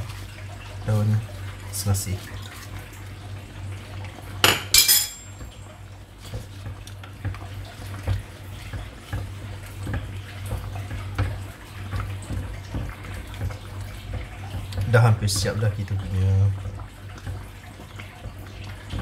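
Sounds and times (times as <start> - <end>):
metal utensil clanking on pot: 4.4 - 5.4.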